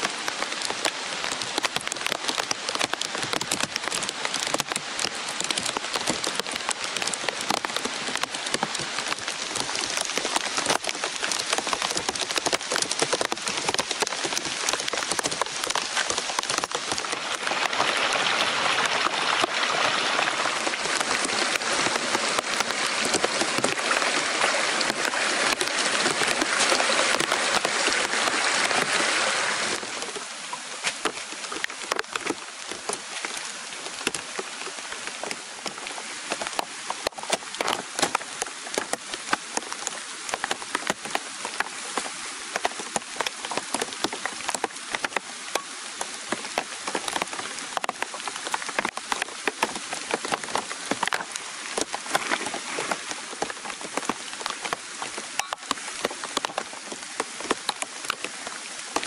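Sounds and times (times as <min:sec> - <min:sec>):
muddy stream rushing over rocks: 0:00.0 - 0:59.0
rain falling on leaves: 0:00.0 - 0:59.0.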